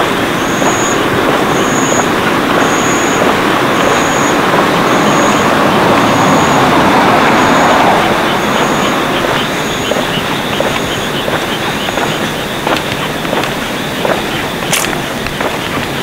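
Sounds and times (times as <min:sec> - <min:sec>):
vehicle passing close by: 0:00.0 - 0:12.8.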